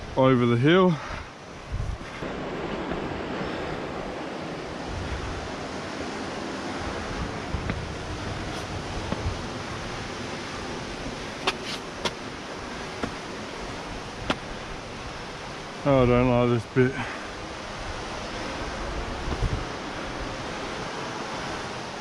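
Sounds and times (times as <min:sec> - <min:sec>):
ocean surf: 0:00.0 - 0:22.0
wind on microphone: 0:00.9 - 0:22.0
sharp taps against rock: 0:08.6 - 0:09.3, 0:11.4 - 0:12.2, 0:13.0 - 0:13.2, 0:14.2 - 0:14.5.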